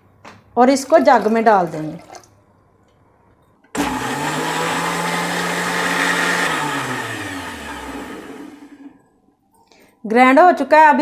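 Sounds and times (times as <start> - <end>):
blender motor grinding: 3.8 - 9.0.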